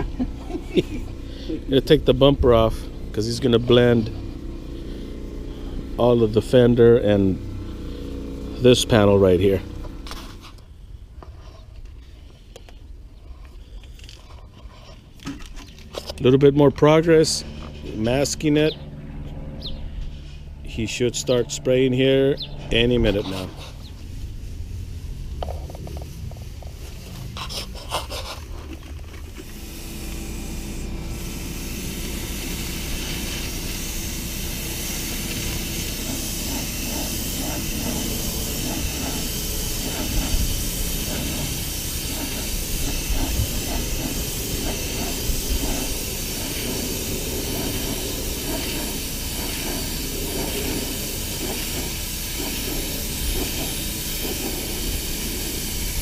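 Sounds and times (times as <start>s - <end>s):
paint spray gun hissing: 0.0s - 10.5s, 22.4s - 56.0s.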